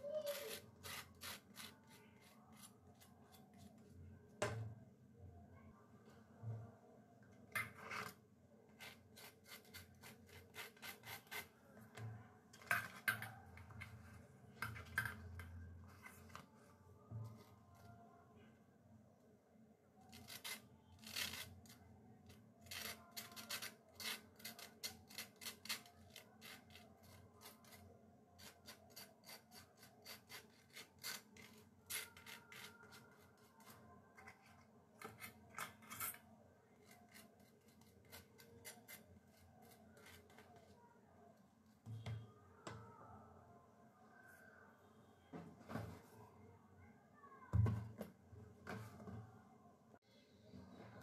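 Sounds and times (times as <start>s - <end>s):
scraping on toasted bread: 0.2s - 3.4s, 7.8s - 11.5s, 22.6s - 27.8s, 28.4s - 33.8s.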